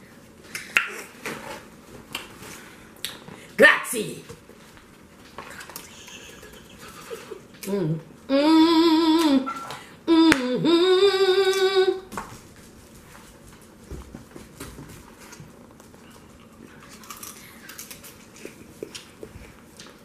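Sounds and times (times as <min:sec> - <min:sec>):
woman humming: 0:07.6 - 0:12.1.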